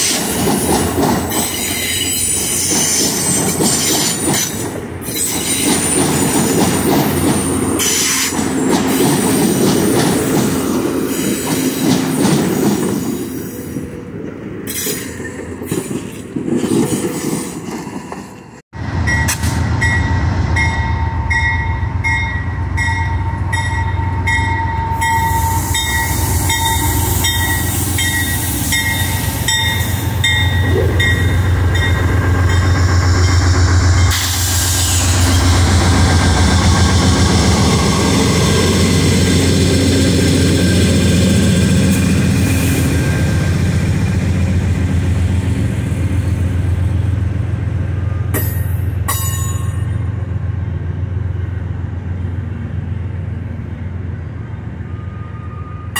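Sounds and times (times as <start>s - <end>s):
diesel locomotive drone: 0.0s - 55.9s
train bell ringing: 19.0s - 34.4s, 48.0s - 50.2s.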